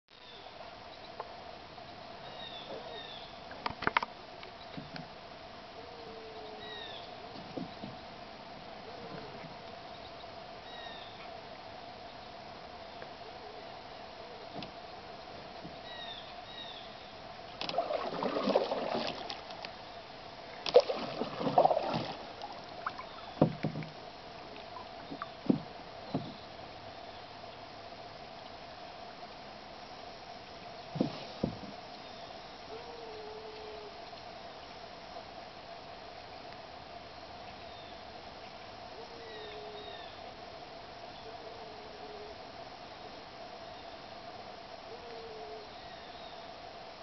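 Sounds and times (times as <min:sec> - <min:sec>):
paddle knocking canoe: 0:07.3 - 0:08.2, 0:17.5 - 0:19.8, 0:20.5 - 0:26.8, 0:30.8 - 0:31.9
paddle splashing water: 0:17.5 - 0:26.8, 0:30.8 - 0:31.8.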